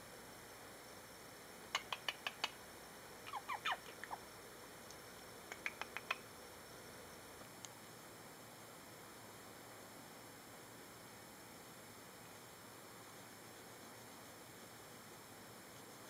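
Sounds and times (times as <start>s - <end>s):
sharp finger clicks: 1.8s - 2.6s, 5.5s - 6.2s.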